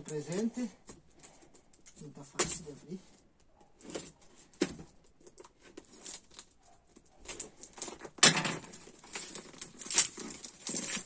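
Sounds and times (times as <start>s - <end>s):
cardboard and tape scraping: 8.7s - 11.0s.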